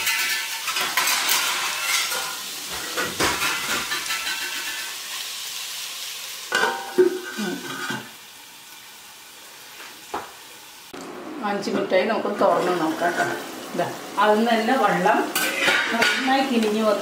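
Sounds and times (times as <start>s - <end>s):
metal plate clattering on pot: 0.0s - 5.0s, 6.5s - 8.1s, 15.3s - 16.8s
prawns sizzling: 0.0s - 17.0s.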